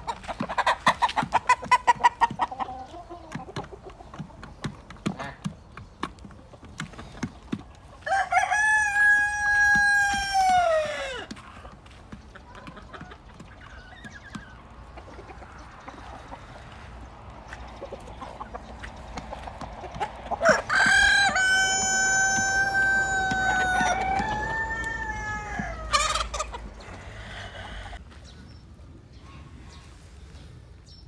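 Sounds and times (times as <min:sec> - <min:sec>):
rooster crowing: 0:08.0 - 0:11.3, 0:20.4 - 0:28.0.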